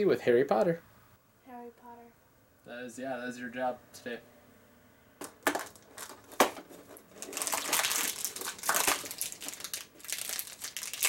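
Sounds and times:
packaging crinkling: 5.4 - 11.0.

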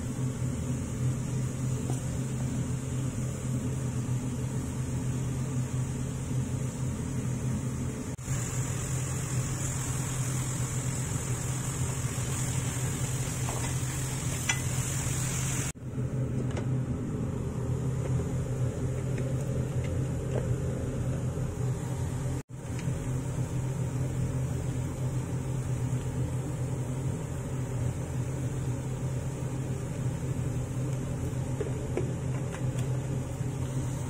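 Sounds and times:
low mechanical hum: 0.0 - 34.0
vegetables stir-frying in a pan: 8.1 - 15.8, 21.7 - 34.0.

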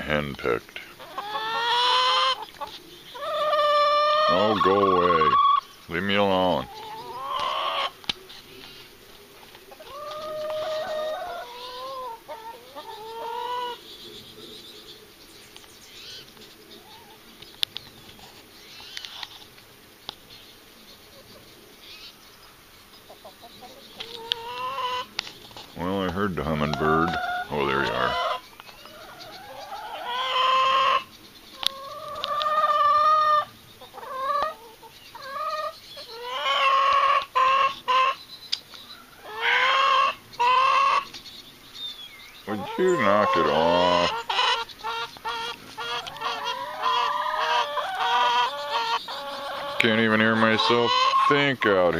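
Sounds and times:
hen calling: 0.0 - 9.0, 9.6 - 15.1, 21.2 - 41.2, 41.8 - 51.9
chickens squawking: 0.0 - 15.2, 15.9 - 19.6, 20.2 - 51.9
small birds twittering: 0.0 - 51.9
chicken clucks: 0.8 - 13.8, 23.0 - 41.3, 42.5 - 51.9.

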